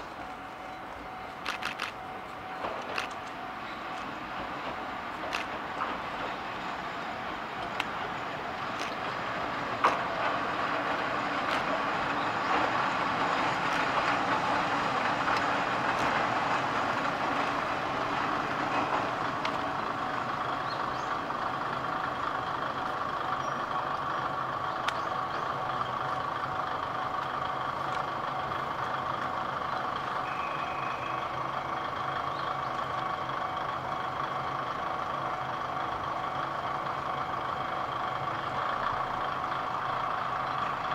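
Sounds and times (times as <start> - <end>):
diesel railcar passing: 0.0 - 40.9
sharp clicks: 1.4 - 4.1, 5.2 - 5.6, 7.6 - 8.0, 8.7 - 9.0, 11.4 - 11.7.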